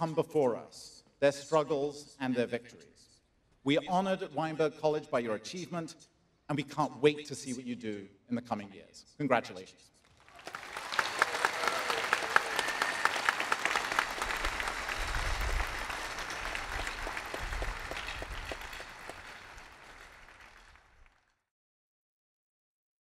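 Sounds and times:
crowd applauding: 10.1s - 21.4s.

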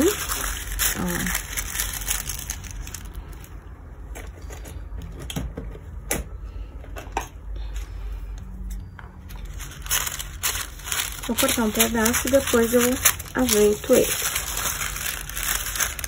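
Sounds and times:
paper rustling and crinkling: 0.0s - 3.5s, 9.3s - 16.0s
low steady hum: 0.0s - 16.0s.

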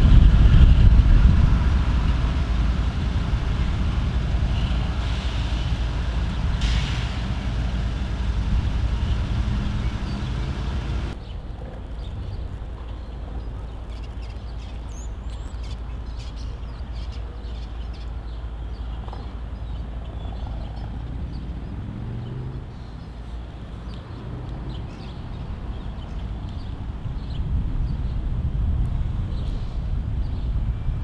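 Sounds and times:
diesel locomotives idling: 0.0s - 11.2s
birds chirping: 4.2s - 28.2s.

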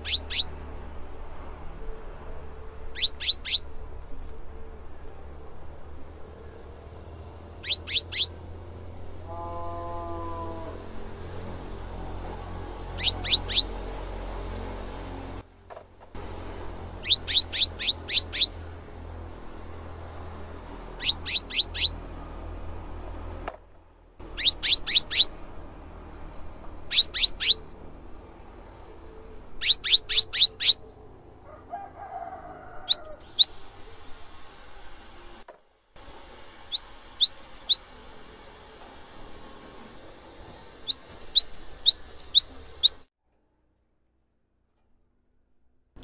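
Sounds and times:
bird singing high notes: 0.0s - 0.6s, 2.8s - 3.8s, 7.6s - 8.4s, 12.9s - 13.8s, 17.0s - 18.6s, 21.0s - 22.0s, 24.3s - 25.4s, 26.9s - 27.7s, 29.6s - 31.0s, 32.9s - 34.5s, 36.6s - 37.8s, 40.7s - 43.1s.

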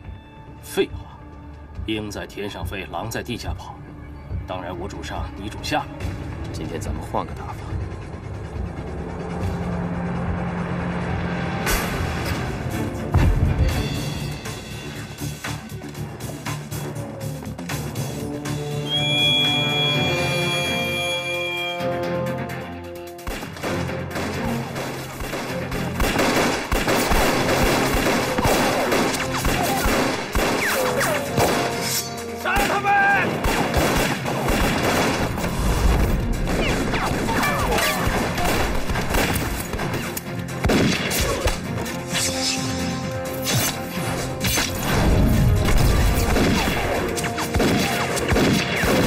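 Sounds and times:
film score music: 0.0s - 49.0s
rapid gunfire: 23.2s - 31.8s, 32.6s - 41.5s, 46.2s - 49.0s.

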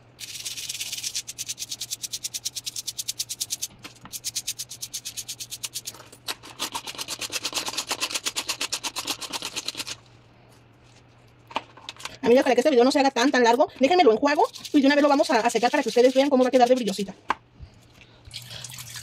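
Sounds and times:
toothbrush scrubbing metal chain: 0.2s - 10.0s, 14.2s - 17.0s.

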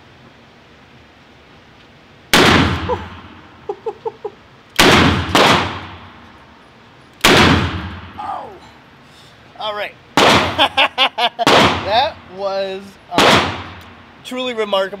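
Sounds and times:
revolver shots echoing indoors: 4.8s - 6.3s, 7.2s - 8.2s, 11.4s - 11.8s, 13.2s - 13.9s.

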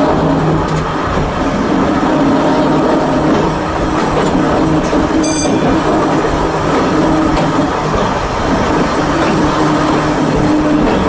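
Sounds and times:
electric railcar hum: 0.0s - 11.0s
wheels rumbling on rail: 0.0s - 11.0s
high-pitched wheel squeal: 5.2s - 5.8s.

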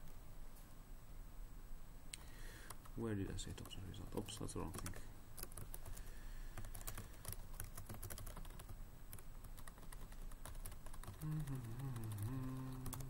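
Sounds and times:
keyboard typing clicks: 6.6s - 13.0s.

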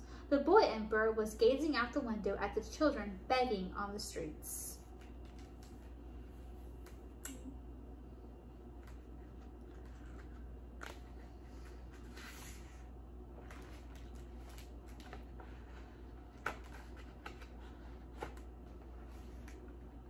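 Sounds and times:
low room hum: 0.0s - 20.0s
book pages turning: 4.9s - 7.0s, 8.7s - 20.0s.

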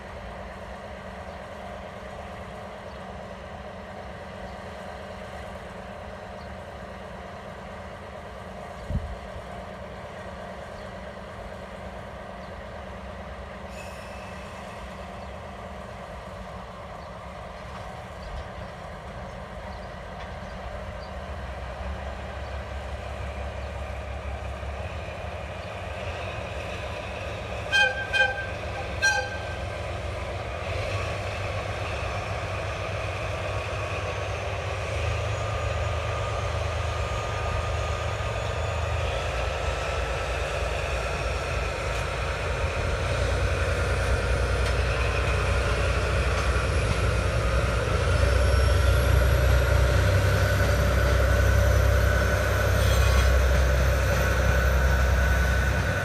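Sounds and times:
diesel locomotive engine drone: 0.0s - 56.0s
short horn toots: 27.7s - 29.6s.

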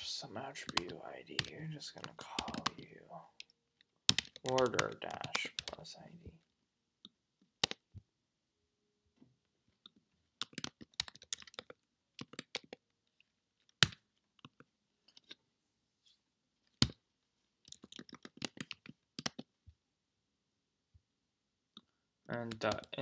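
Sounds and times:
computer keyboard typing: 0.6s - 5.9s, 7.6s - 7.9s, 9.8s - 12.9s, 17.7s - 19.5s, 22.3s - 23.0s.

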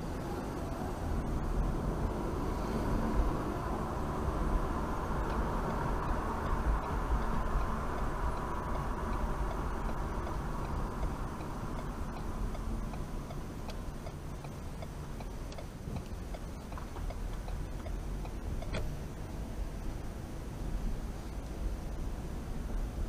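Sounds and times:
low road rumble: 0.0s - 23.0s
turn signal ticking: 4.0s - 20.0s.

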